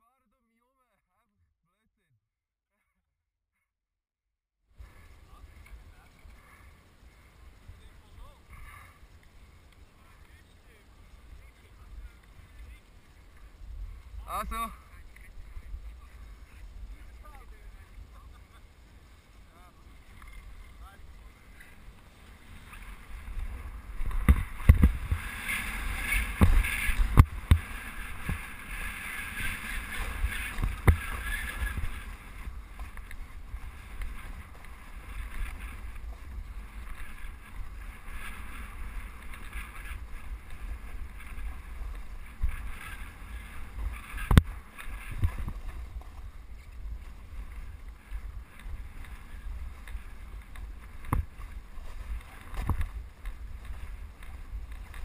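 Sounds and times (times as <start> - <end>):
wind rushing on microphone: 10.0 - 55.0
edges scraping over crusty snow: 19.7 - 55.0.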